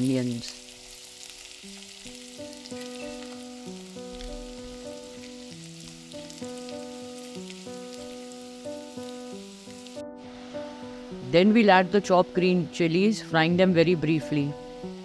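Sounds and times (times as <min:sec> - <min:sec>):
onions sizzling in hot oil: 0:00.0 - 0:11.2, 0:14.5 - 0:15.0
background music: 0:00.0 - 0:15.0.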